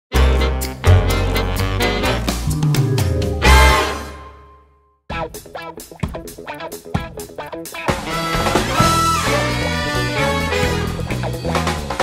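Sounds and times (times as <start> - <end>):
theme music with bass and drums: 0.1 - 12.0.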